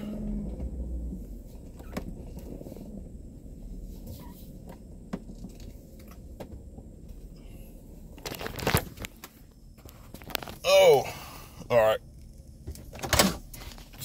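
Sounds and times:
low car cabin rumble: 0.0s - 14.0s
phone rustling crunch: 8.1s - 10.7s.

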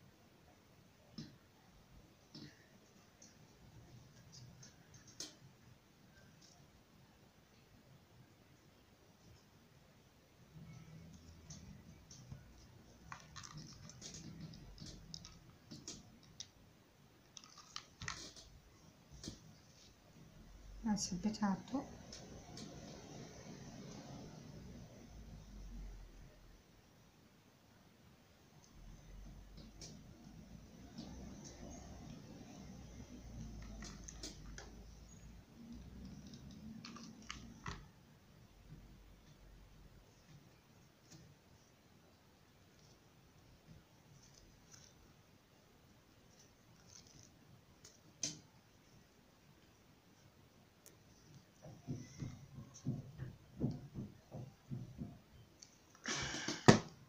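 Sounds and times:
ribbon rustling and clicking: 11.1s - 16.6s, 17.2s - 20.0s, 35.6s - 37.9s, 42.7s - 45.2s, 46.2s - 48.4s
glue gun clicks and rustles: 17.3s - 18.6s.

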